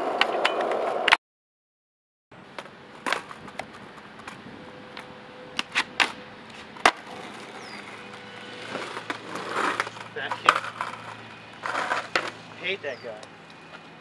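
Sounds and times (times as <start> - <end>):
skateboard clacking on pavement: 2.5 - 4.4, 6.8 - 12.4.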